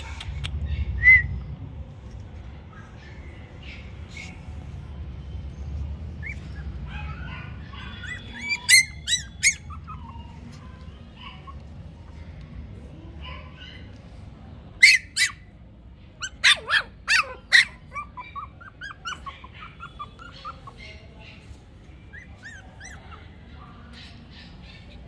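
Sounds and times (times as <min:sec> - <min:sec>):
puppies yapping: 0:02.7 - 0:04.6, 0:06.0 - 0:12.2, 0:14.8 - 0:15.6, 0:16.2 - 0:25.0.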